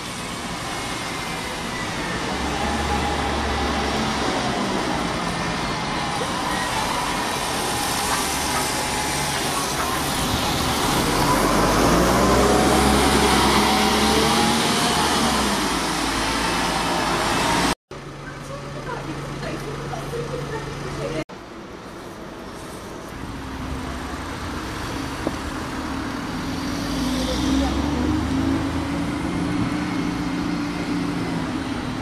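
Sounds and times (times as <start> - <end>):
diesel bus engine passing: 0.0 - 21.3, 23.1 - 32.0
street traffic: 0.0 - 32.0.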